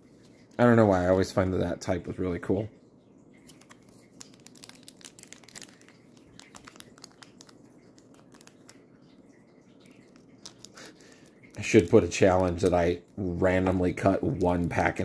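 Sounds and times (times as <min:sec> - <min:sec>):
foil wrapper crinkling: 0:03.4 - 0:09.2, 0:09.8 - 0:15.0.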